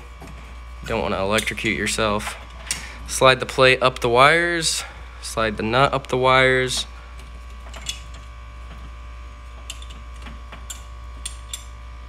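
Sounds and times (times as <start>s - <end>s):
steady background hum: 0.0s - 12.0s
metal parts clicking and rattling: 6.5s - 11.8s.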